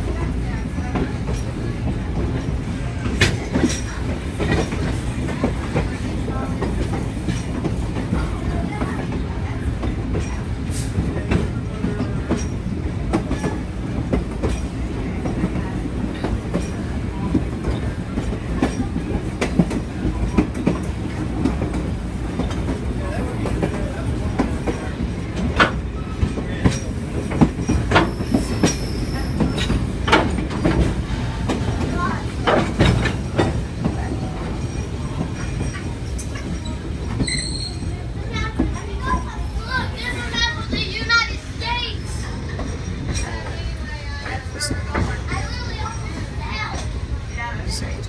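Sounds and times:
railroad car rumble: 0:00.0 - 0:48.0.

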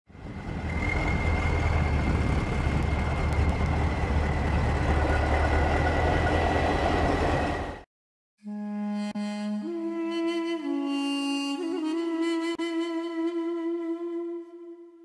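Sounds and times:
high engine whine: 0:00.1 - 0:07.8.

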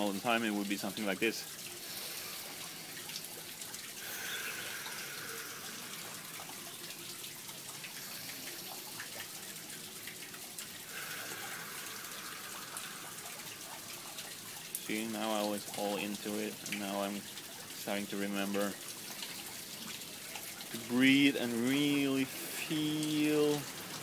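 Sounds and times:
man breathing slowly: 0:01.8 - 0:06.9, 0:07.7 - 0:09.4, 0:10.8 - 0:14.5.

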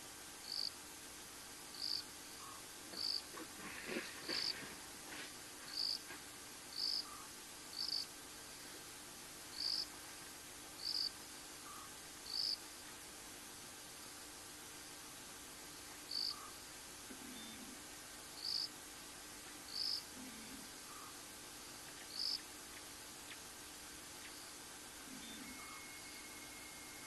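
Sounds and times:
insect chirping: 0:00.4 - 0:03.3, 0:05.7 - 0:06.0, 0:06.7 - 0:08.6, 0:09.4 - 0:10.0, 0:10.8 - 0:13.2, 0:15.6 - 0:27.0.

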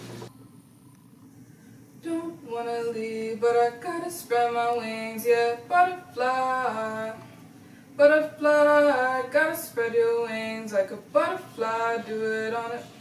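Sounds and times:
person singing without words: 0:02.0 - 0:07.3.

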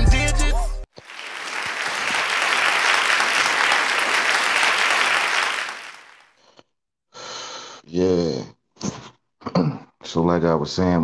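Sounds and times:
applause: 0:01.0 - 0:06.4.

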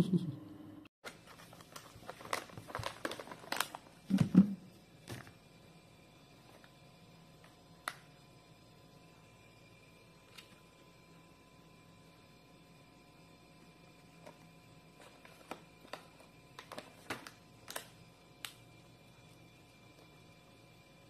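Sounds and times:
room hum: 0:00.0 - 0:21.0.

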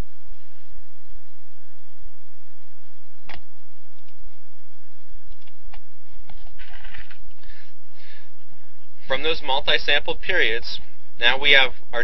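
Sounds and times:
computer mouse clicking: 0:03.3 - 0:04.2, 0:05.3 - 0:06.4.

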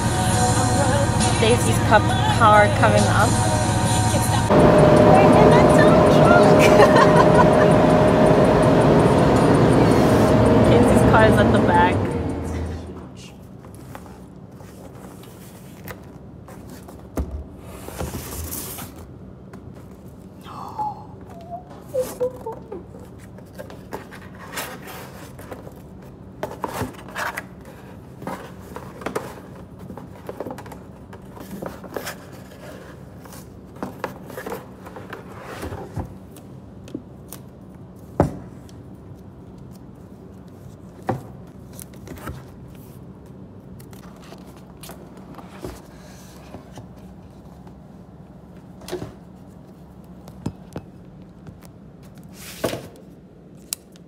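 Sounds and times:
steady low hum: 0:00.0 - 0:24.2.

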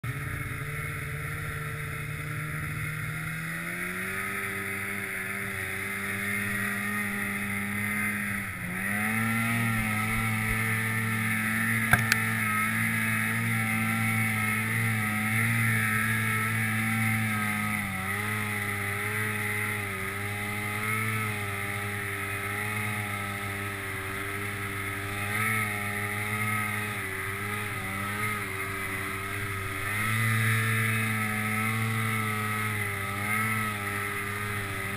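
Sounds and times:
snowmobile engine revving: 0:00.0 - 0:34.9
sharp clicks: 0:11.8 - 0:12.2.

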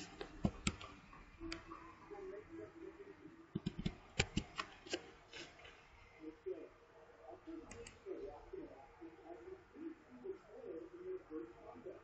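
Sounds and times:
keyboard keystrokes: 0:00.2 - 0:00.9, 0:03.6 - 0:05.0.

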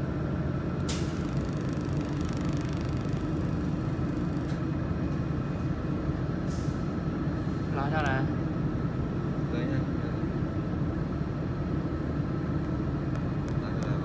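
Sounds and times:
welding machine low hum: 0:00.8 - 0:05.0.

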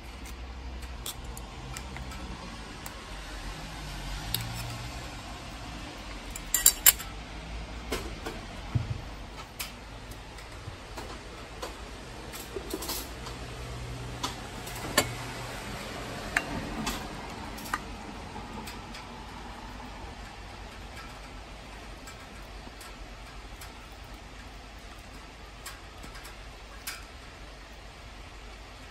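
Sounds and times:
metal utensils clinking on metal: 0:06.2 - 0:07.1, 0:12.3 - 0:13.2.

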